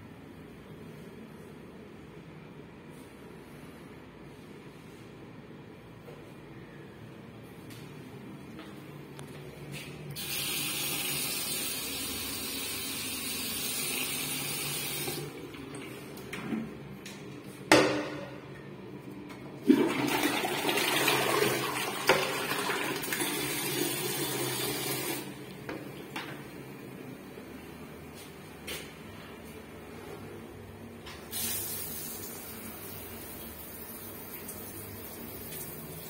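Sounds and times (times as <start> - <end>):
toilet flushing: 10.2 - 16.7, 19.5 - 26.1.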